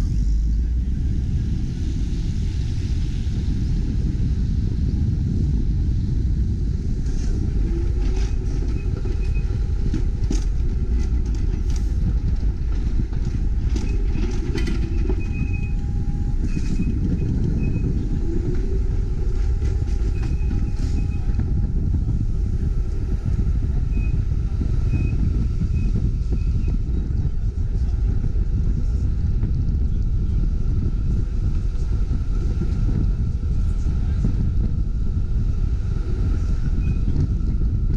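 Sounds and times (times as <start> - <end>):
streetcar rumbling on rails: 0.0 - 37.9
faint high-pitched squeals: 7.0 - 28.0.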